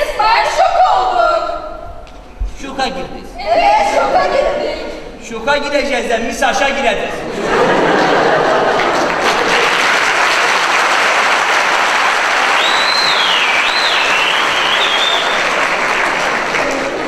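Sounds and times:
audience applauding: 0:07.8 - 0:17.0
sliding high whistle: 0:12.5 - 0:15.5.

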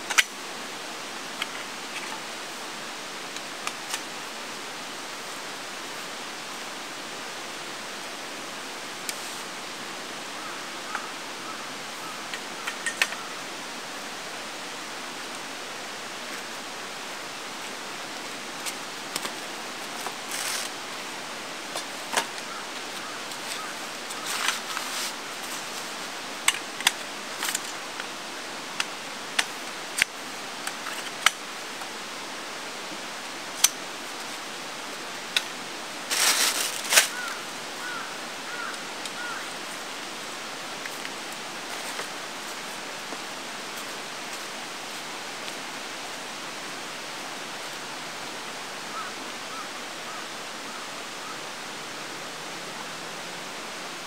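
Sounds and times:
running water: 0:00.0 - 0:54.0
metal poles clicking: 0:12.6 - 0:13.2
rustling: 0:18.2 - 0:28.2, 0:35.2 - 0:39.9, 0:40.7 - 0:45.0.

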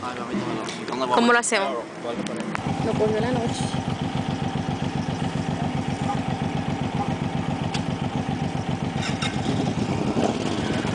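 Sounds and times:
motorcycle engine idling: 0:02.4 - 0:10.9.

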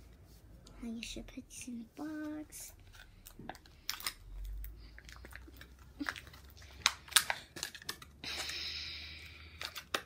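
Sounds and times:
plastic wrapping crinkling: 0:02.7 - 0:08.8.

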